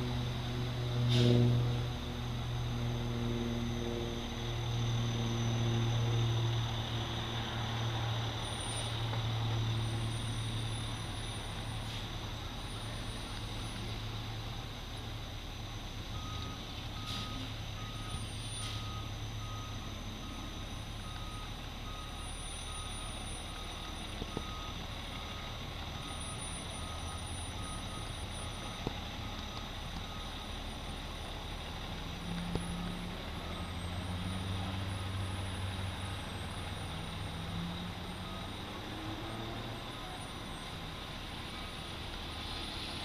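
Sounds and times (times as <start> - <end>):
diesel engine running: 0.0 - 43.0
reversing alarm beeping: 15.5 - 31.6, 32.2 - 40.8.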